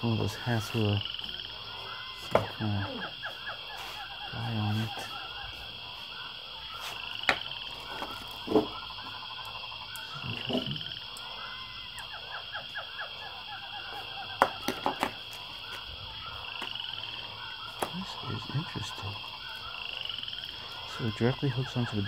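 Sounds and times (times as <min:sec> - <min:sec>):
items knocking and clattering: 0:07.3 - 0:08.8, 0:14.4 - 0:15.2.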